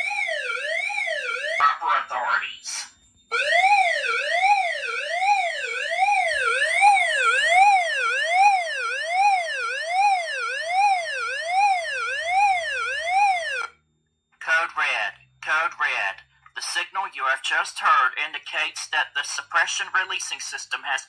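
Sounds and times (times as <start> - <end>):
electronic siren sweeping: 0.0 - 13.8.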